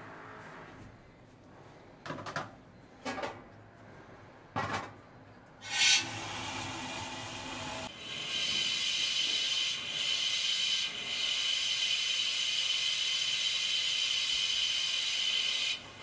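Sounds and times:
steamer hissing steam: 5.6 - 16.0.

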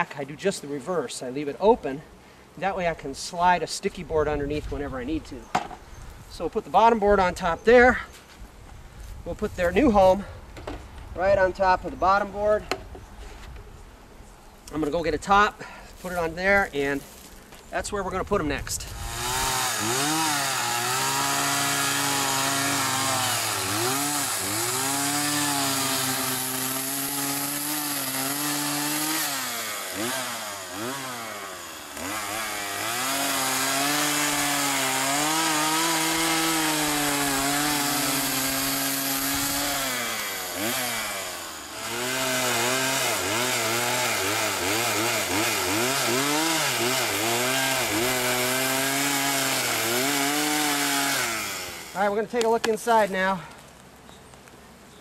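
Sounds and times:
chainsaw cutting log: 18.8 - 53.2.

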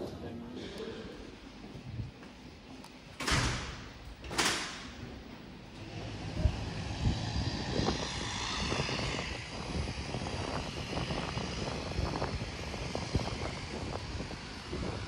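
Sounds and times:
high engine whine: 4.9 - 15.0
turboprop engines running: 4.9 - 15.0.

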